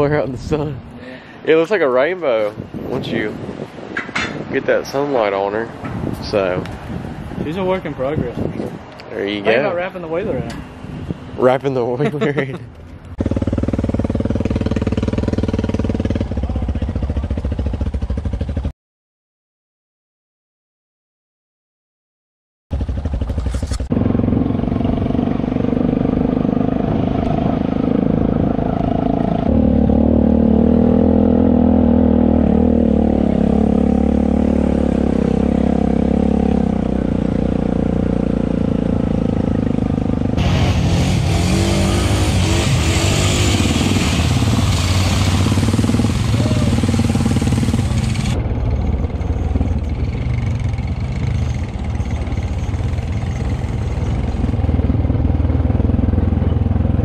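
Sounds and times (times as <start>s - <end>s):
atv engine running: 13.1s - 18.7s, 22.7s - 57.0s
loud rushing hiss: 40.4s - 48.4s.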